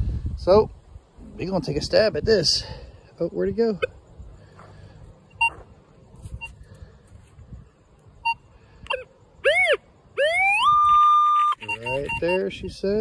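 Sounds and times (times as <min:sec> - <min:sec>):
metal detector beeps: 0:05.3 - 0:05.6, 0:06.3 - 0:06.7, 0:08.2 - 0:12.7
metal detector tone: 0:05.3 - 0:05.6, 0:06.3 - 0:06.6, 0:08.2 - 0:12.7.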